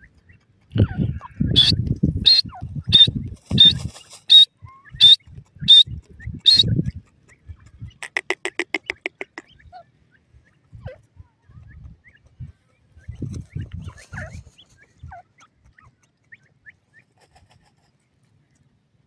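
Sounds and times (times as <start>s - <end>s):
bird stuttering chatter: 0.7s - 9.7s
bird calling sharp high notes: 8.0s - 9.6s.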